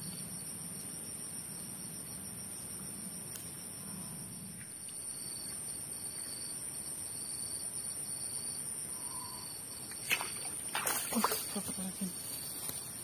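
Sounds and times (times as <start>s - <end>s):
high-pitched insect chorus: 0.0s - 13.0s.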